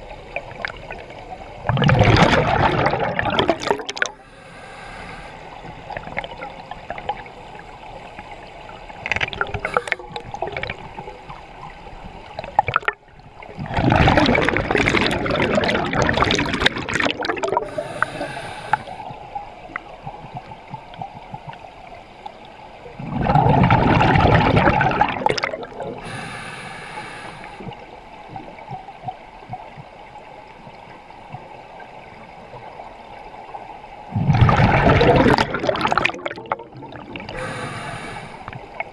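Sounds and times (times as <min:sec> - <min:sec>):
underwater exhaled air bubbling: 0:00.0 - 0:11.6, 0:12.3 - 0:21.7, 0:22.8 - 0:29.7, 0:34.1 - 0:38.9
scuba regulator hiss: 0:04.2 - 0:05.5, 0:09.6 - 0:10.1, 0:17.6 - 0:19.0, 0:26.0 - 0:27.7, 0:37.4 - 0:38.5.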